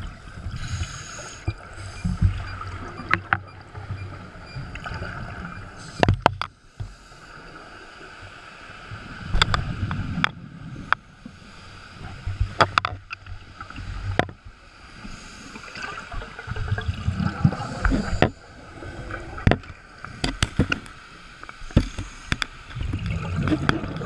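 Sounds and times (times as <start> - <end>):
faint steady hum: 0.0 - 24.0
diver's bubbles underwater: 15.8 - 20.8, 22.7 - 24.0.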